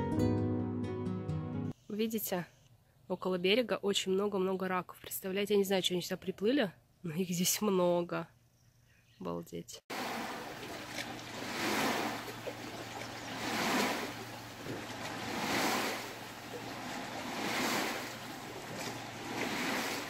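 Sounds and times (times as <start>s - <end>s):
lake water lapping: 9.9s - 20.0s.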